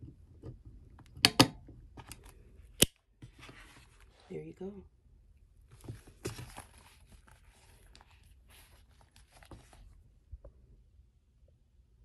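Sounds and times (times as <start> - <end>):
leather cover rustling and rubbing: 5.8 - 10.0.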